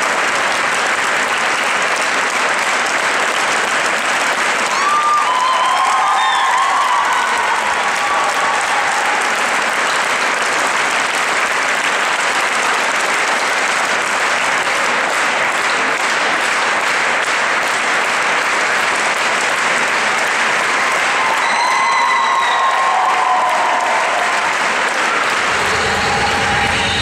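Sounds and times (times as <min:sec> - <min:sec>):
crowd applauding: 0:00.0 - 0:27.0.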